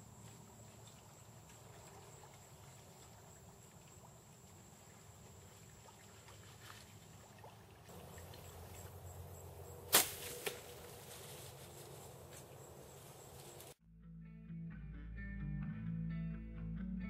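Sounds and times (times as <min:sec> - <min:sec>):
loud sharp snap: 0:09.9 - 0:10.7.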